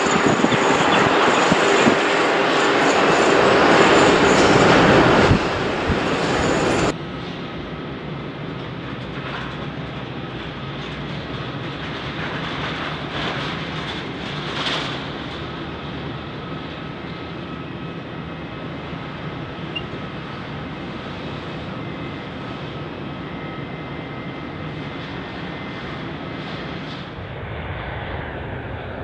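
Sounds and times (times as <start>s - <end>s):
aircraft tug mechanical drone: 0.0s - 29.0s
rush of noise: 25.0s - 29.0s.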